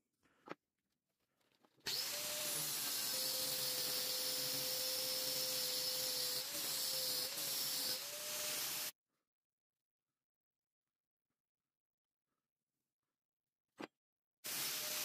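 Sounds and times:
angle grinder cutting steel: 1.9s - 8.9s.

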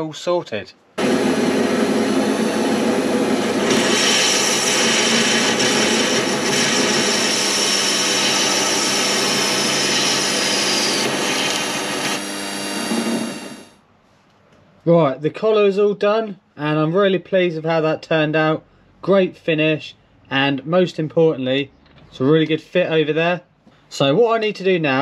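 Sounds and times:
lathe hum: 1.0s - 13.7s
high cutting whine: 1.0s - 13.8s.

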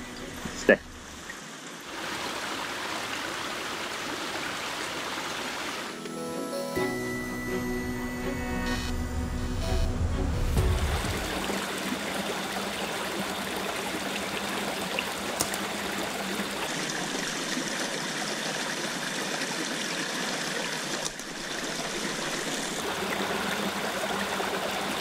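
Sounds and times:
brook running over stones: 10.8s - 25.0s.

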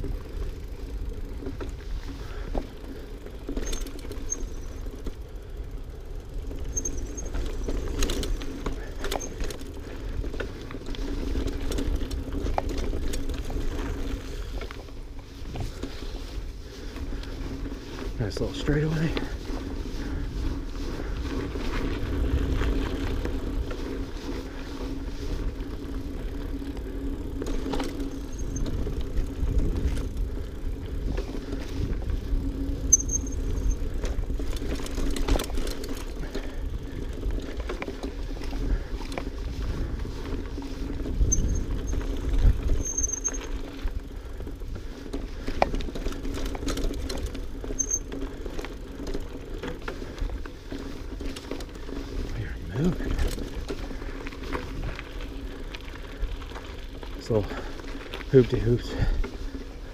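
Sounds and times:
bike rattling over bumps: 0.0s - 59.9s
bike tyres on dirt trail: 0.0s - 59.9s
short high squeaks: 6.7s - 7.4s, 32.8s - 33.8s, 41.2s - 42.0s, 42.7s - 43.5s, 47.7s - 48.2s
wind rumble on microphone: 28.2s - 43.0s.

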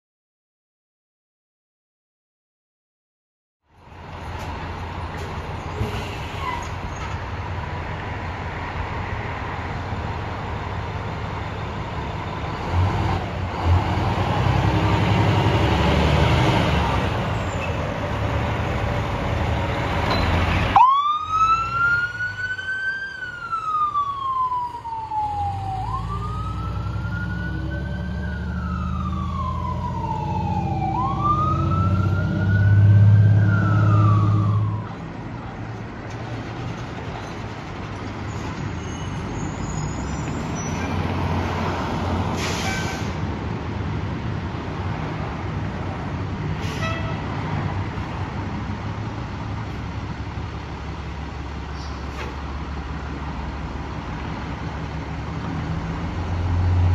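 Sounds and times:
diesel engine rumble: 3.7s - 56.9s
fire engine siren wailing: 20.6s - 35.2s.

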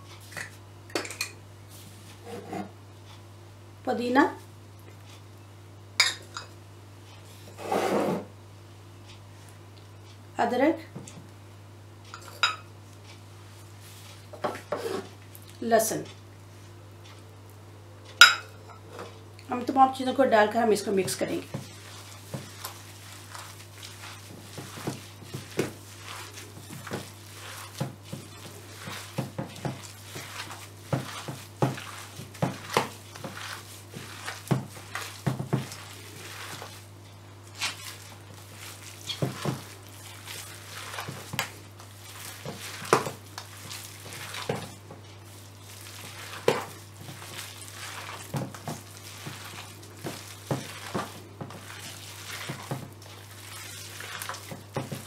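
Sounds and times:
squelching of kneaded mince: 19.4s - 55.0s
plastic gloves crackling: 20.7s - 55.0s.

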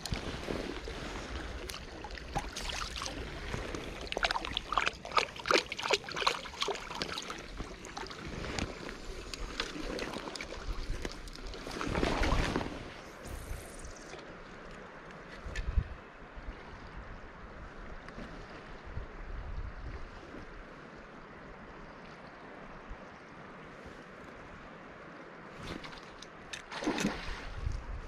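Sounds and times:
river water splashing: 0.0s - 15.3s, 20.5s - 28.0s.

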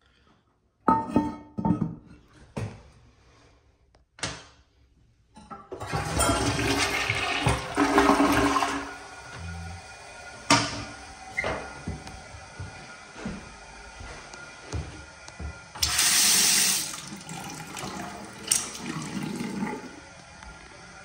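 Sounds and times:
toilet flushing: 5.5s - 21.0s.

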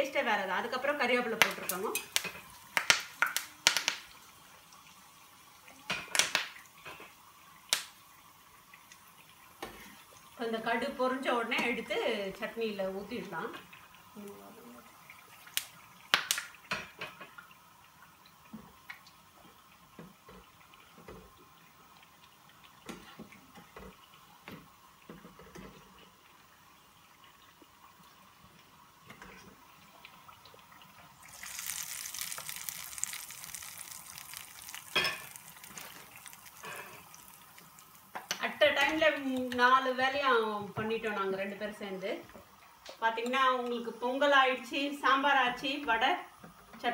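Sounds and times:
seeds crackling in hot oil: 0.0s - 24.6s, 29.1s - 42.0s
loud steady sizzle: 0.0s - 46.9s.

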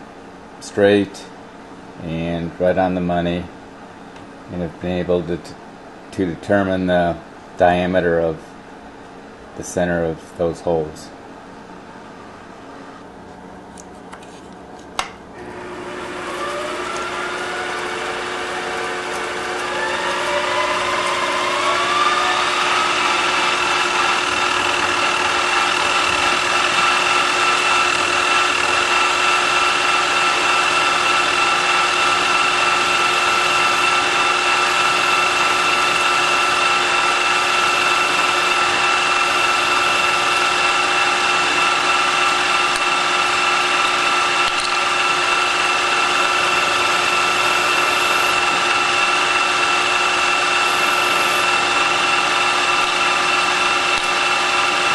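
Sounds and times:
spindle drive whining: 15.0s - 54.9s
drill bit drilling into metal: 15.4s - 54.9s
click: 44.4s - 44.8s.

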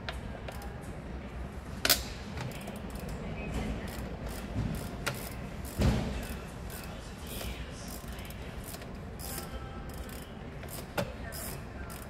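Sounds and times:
ratchet wrench clicking: 3.9s - 12.0s.

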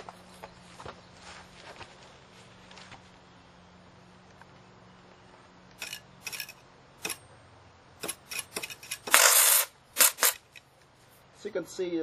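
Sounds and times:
electrode scratching sheet metal: 8.0s - 10.5s.

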